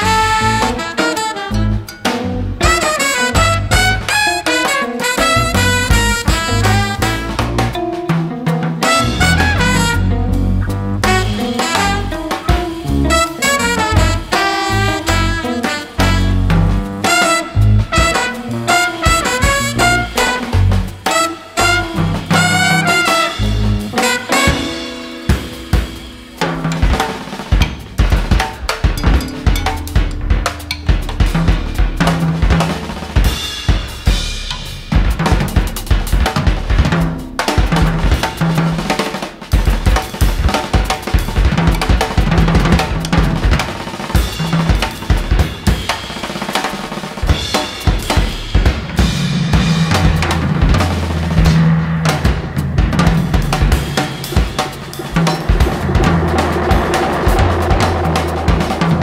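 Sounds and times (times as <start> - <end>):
trumpet and saxophone phrases: 0.0 - 7.8, 8.8 - 25.3
drum kit playing: 0.0 - 59.0
cymbal crashes: 23.3 - 32.4, 43.2 - 59.0
band sustained low notes: 29.0 - 32.1, 49.0 - 59.0.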